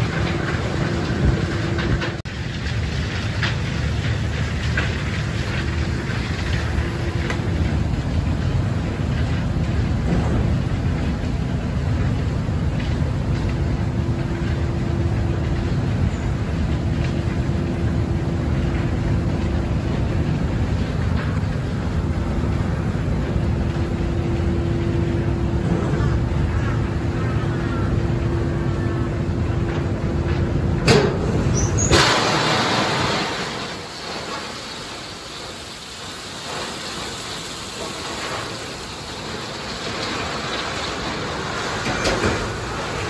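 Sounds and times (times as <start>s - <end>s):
steady low hum: 0.0s - 31.7s
train car rumbling: 0.0s - 43.0s
coal pouring into car: 31.2s - 43.0s.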